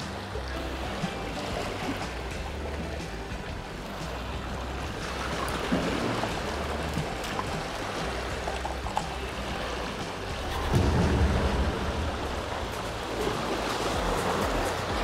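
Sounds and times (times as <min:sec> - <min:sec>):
small waves lapping against rocks: 0:00.0 - 0:15.0.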